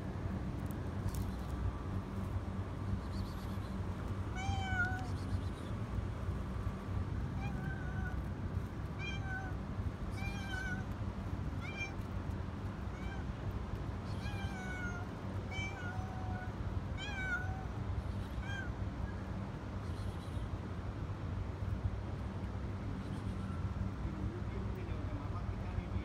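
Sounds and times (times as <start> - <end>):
low background rumble: 0.0 - 26.0
cat meowing: 4.3 - 5.2, 7.4 - 8.3, 8.9 - 11.0, 11.6 - 12.0, 12.9 - 13.3, 14.0 - 19.3.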